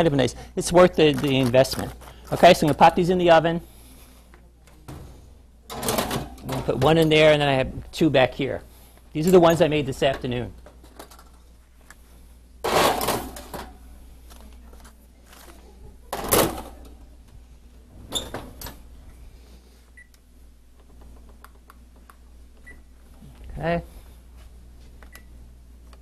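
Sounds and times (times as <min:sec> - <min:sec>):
metal pans clattering on oven racks: 0:05.7 - 0:07.0, 0:12.6 - 0:13.8.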